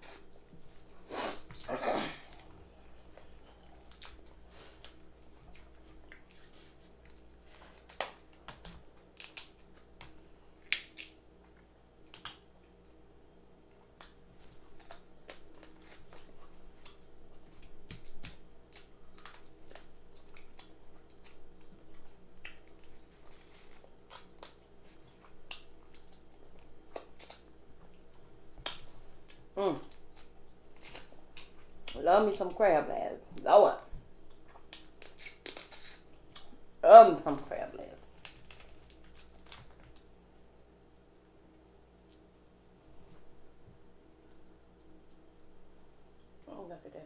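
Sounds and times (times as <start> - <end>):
chewing and lip-smacking: 2.3 - 13.0, 13.7 - 32.0, 34.2 - 36.6, 38.0 - 40.5, 41.1 - 42.6
crab shells cracking: 7.6 - 11.2, 38.0 - 40.1.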